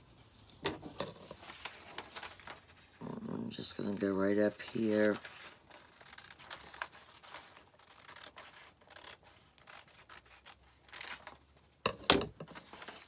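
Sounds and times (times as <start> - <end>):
paper rustling: 0.8 - 11.4, 12.4 - 13.0
scissors snipping paper: 3.5 - 11.4.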